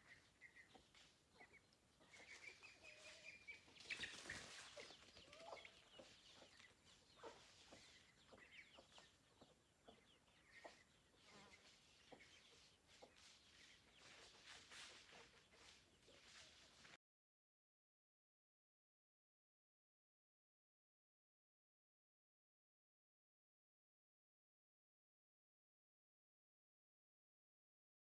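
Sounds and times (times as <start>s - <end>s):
chickens clucking: 0.0s - 17.0s
small birds chirping: 0.0s - 17.0s.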